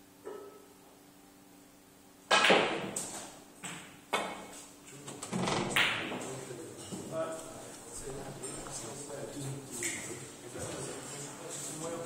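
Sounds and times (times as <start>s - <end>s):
snooker balls knocking: 5.4s - 6.3s.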